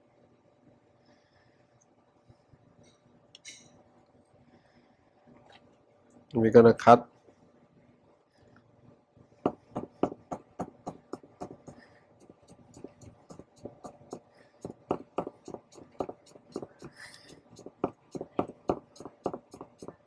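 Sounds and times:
knife blade tapping cutting board: 9.5 - 20.0.

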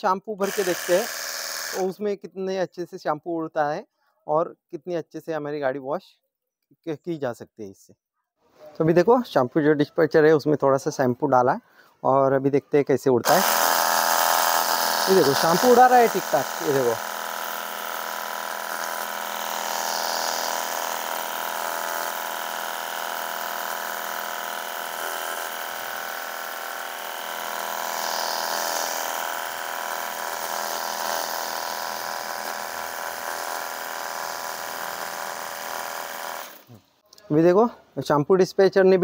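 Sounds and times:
electric pump whine: 0.4 - 2.0, 13.2 - 36.8.

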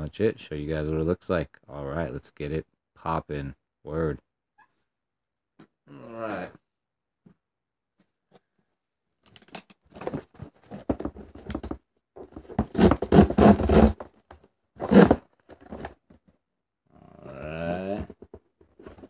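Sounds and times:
cardboard and tape ripping: 9.2 - 11.8, 12.4 - 16.0.

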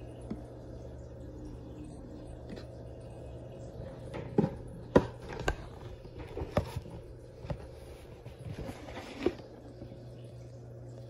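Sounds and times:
aquarium filter hum: 0.0 - 11.0.

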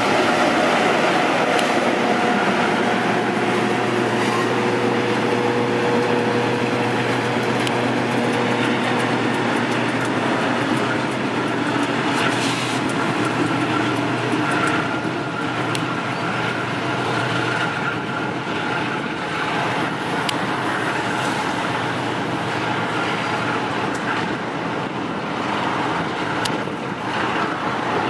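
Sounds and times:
diesel locomotive engine drone: 0.0 - 28.0
wheels clicking on rails: 0.0 - 28.0.

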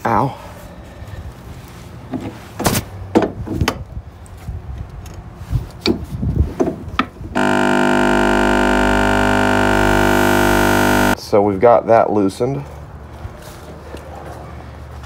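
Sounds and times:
loud steady hum: 7.4 - 11.2.

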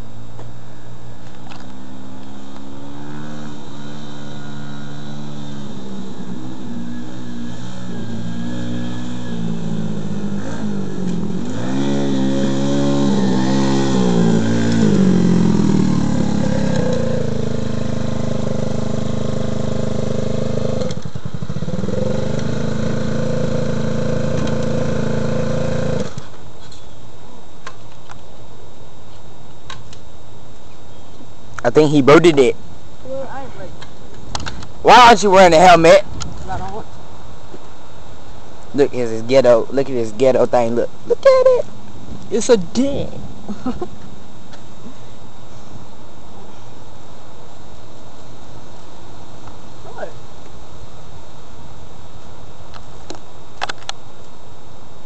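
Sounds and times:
motorbike engine revving: 1.7 - 26.3.

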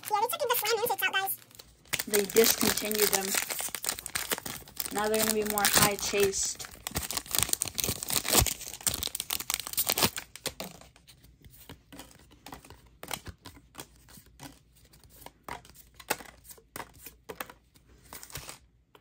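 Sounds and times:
plastic wrapper tearing and crinkling: 0.0 - 11.0
cards clicking and rustling: 0.1 - 19.0.

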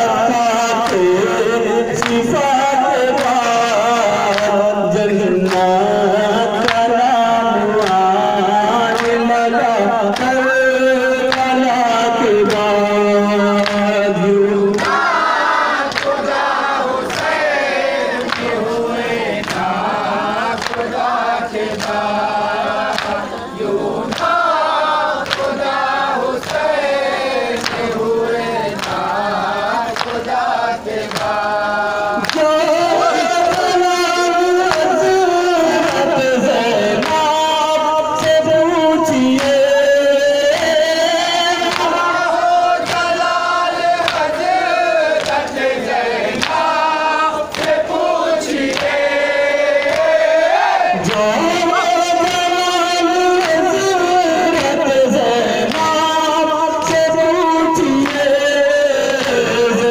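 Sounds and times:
men chanting in unison: 0.0 - 59.9
chest-beating slaps: 25.2 - 25.6, 27.6 - 28.0.

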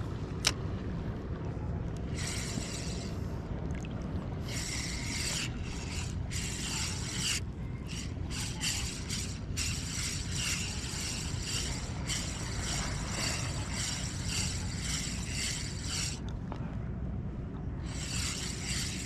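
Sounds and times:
steady low rumble: 0.0 - 19.0
fishing reel gears whirring: 2.1 - 3.3, 4.4 - 16.2, 17.8 - 19.0.

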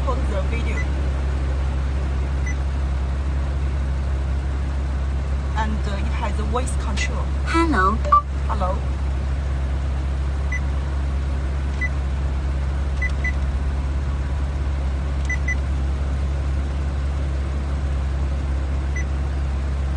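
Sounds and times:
low cabin hum: 0.0 - 19.9
touchscreen confirmation beeps: 8.0 - 8.3.

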